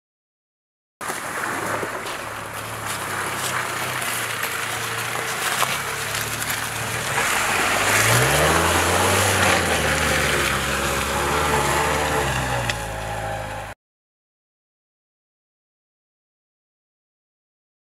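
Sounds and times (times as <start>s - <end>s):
car engine pulling under load: 1.0s - 13.8s
tyres splashing through mud: 1.0s - 13.8s.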